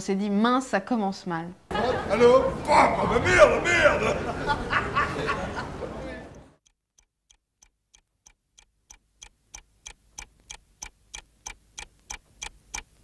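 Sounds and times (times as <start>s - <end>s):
clock-like ticking: 6.6s - 13.0s.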